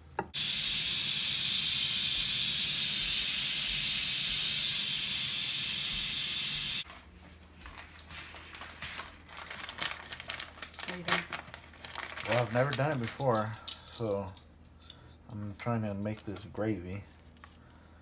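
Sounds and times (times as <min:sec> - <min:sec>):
pressure cooker venting steam: 0:00.2 - 0:06.8.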